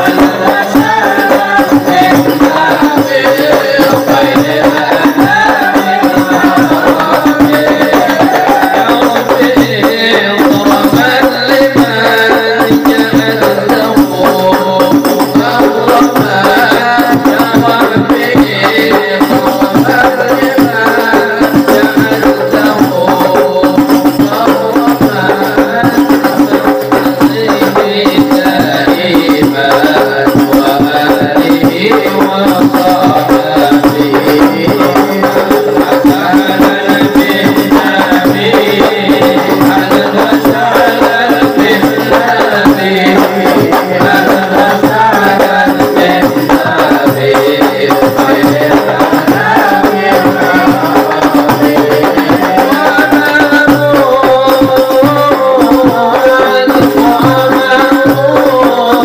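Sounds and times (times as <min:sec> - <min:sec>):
hand-struck frame drums: 0:00.0 - 0:59.0
voices singing: 0:00.0 - 0:59.0.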